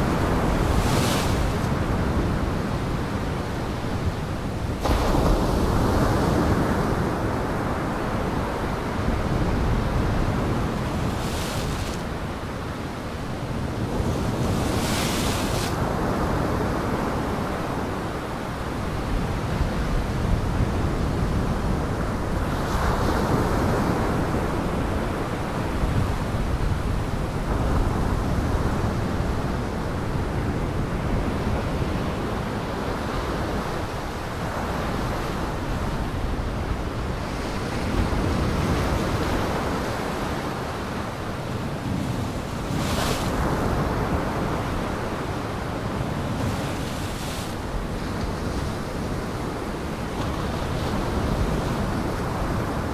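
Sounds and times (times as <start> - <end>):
waves breaking: 0.0 - 2.2.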